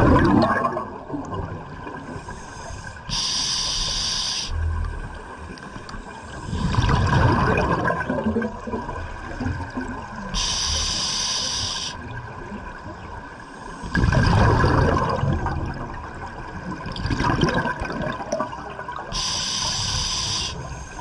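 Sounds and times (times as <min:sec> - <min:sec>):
exhalation bubbling underwater: 0:00.0 - 0:01.6, 0:06.6 - 0:09.0, 0:13.9 - 0:16.0, 0:16.8 - 0:18.9
regulator inhalation hiss: 0:02.1 - 0:04.6, 0:10.4 - 0:12.1, 0:19.1 - 0:21.0.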